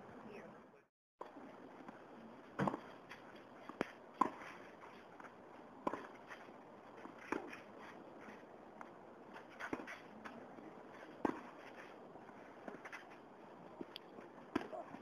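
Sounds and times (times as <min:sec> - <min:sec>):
tennis ball bouncing on court: 0:02.6 - 0:02.9, 0:03.7 - 0:04.4, 0:05.8 - 0:06.2, 0:11.2 - 0:11.5
tennis ball hit with rackets: 0:02.6 - 0:02.9, 0:03.8 - 0:04.5, 0:11.2 - 0:11.6, 0:14.5 - 0:15.0.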